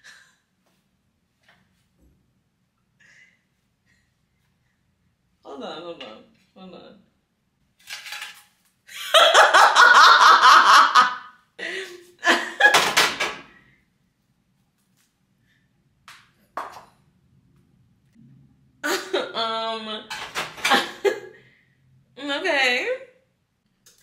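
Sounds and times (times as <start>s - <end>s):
woman laughing: 8.9s - 12.8s.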